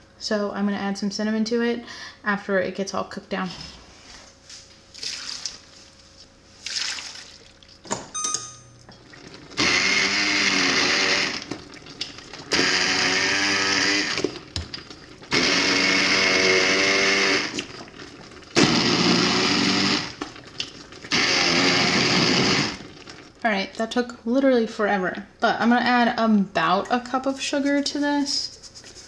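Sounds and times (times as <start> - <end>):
immersion blender motor whirring: 9.5 - 11.6, 12.4 - 14.4, 15.3 - 17.7, 18.6 - 20.2, 21.1 - 22.9.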